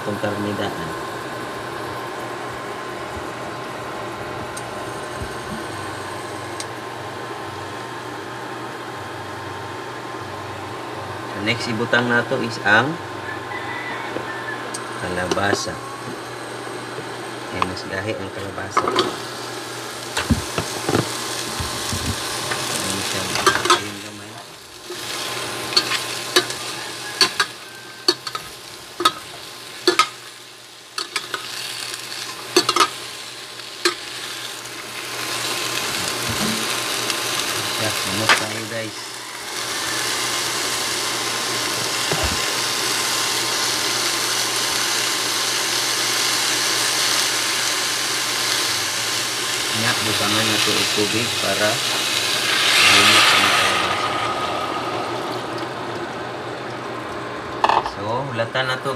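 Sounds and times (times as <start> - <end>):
squash sizzling in hot oil: 13.6 - 57.8
utensil clinking against pot: 23.4 - 23.9, 27.2 - 27.5, 29.9 - 30.2, 32.6 - 33.0.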